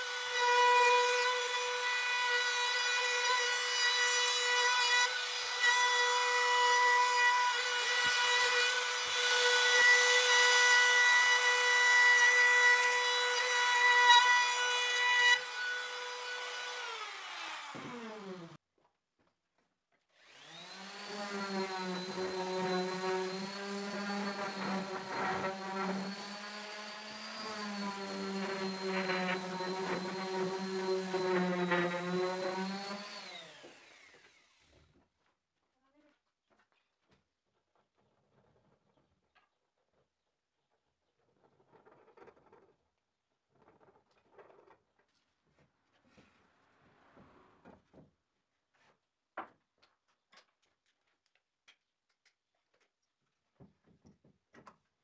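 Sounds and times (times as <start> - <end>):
power tool cutting wood: 0.0 - 18.6, 20.2 - 34.8.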